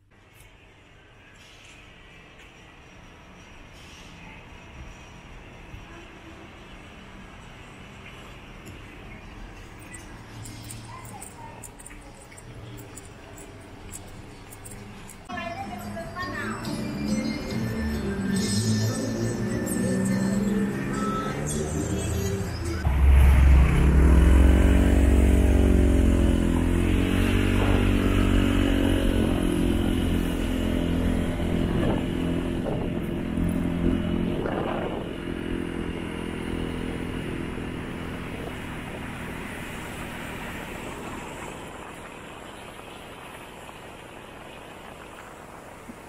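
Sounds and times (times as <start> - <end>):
motorcycle engine accelerating: 17.4 - 45.3.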